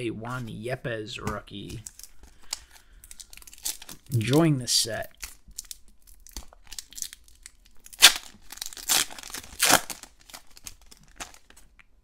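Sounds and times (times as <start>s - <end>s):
foil wrapper crinkling: 1.6s - 11.8s
foil wrapper ripping: 5.0s - 11.6s.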